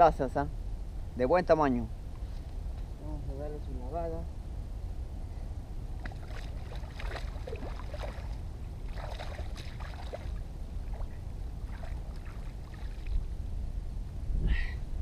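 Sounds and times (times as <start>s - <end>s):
wind rumble on microphone: 0.0s - 15.0s
water splashing and sloshing: 6.0s - 13.3s.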